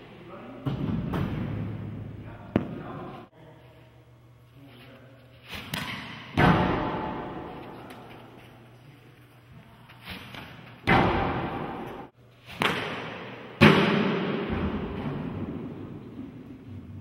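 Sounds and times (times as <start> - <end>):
loud echoing bangs: 6.3 - 7.6, 10.8 - 15.9.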